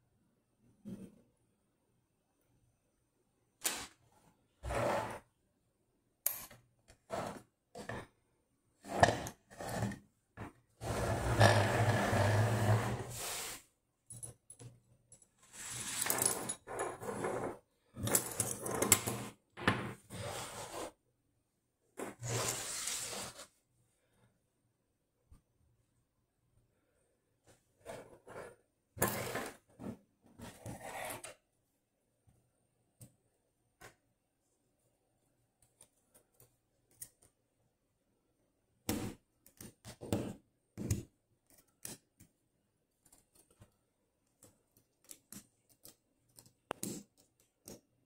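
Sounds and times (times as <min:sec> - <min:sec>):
metal tools sliding on wood: 0:10.8 - 0:13.6, 0:15.4 - 0:17.6.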